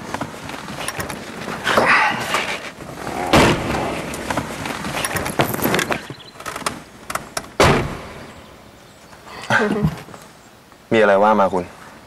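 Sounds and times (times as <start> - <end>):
rustling: 0.0 - 8.1
car door slamming: 3.2 - 4.5, 7.6 - 8.2
car door thud: 3.3 - 3.9, 7.6 - 8.2.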